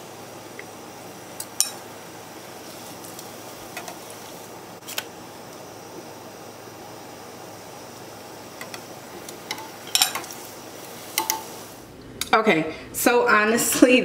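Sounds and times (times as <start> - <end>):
tortilla sizzling in oil: 0.0 - 11.9
metal utensils clinking on pan: 9.5 - 10.4, 11.2 - 11.5.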